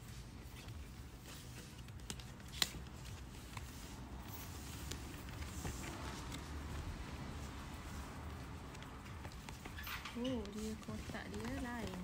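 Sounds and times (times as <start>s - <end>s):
cardboard rustling: 0.0s - 12.0s.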